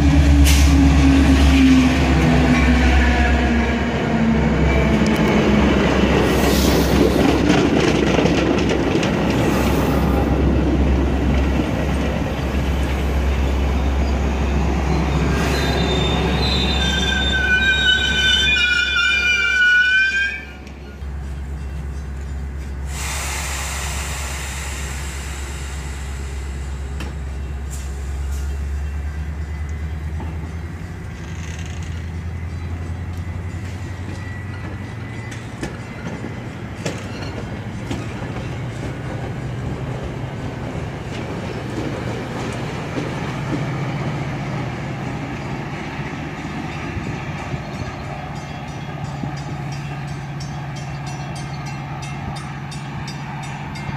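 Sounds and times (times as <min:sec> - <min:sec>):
diesel locomotive engine drone: 0:00.0 - 0:53.9
train wheels clicking over rail joints: 0:06.2 - 0:09.6, 0:26.8 - 0:43.8.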